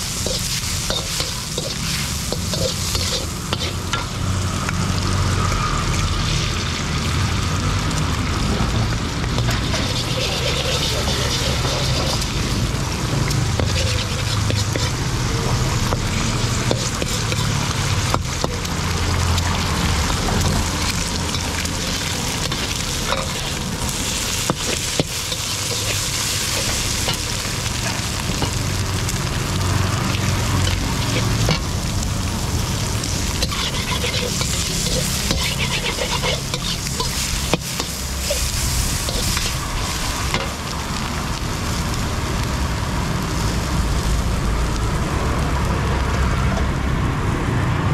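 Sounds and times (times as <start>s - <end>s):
food sizzling in a wok: 0.0s - 47.9s
metal ladle scraping a wok: 0.1s - 4.2s, 9.3s - 12.6s, 13.5s - 18.7s, 20.7s - 28.6s, 30.6s - 31.7s, 33.2s - 40.6s.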